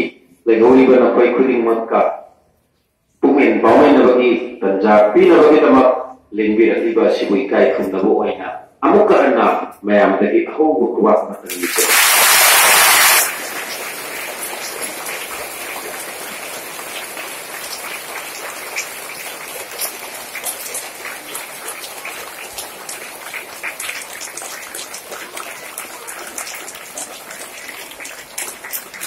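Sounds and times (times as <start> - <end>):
crowd clapping: 11.5 - 29.0.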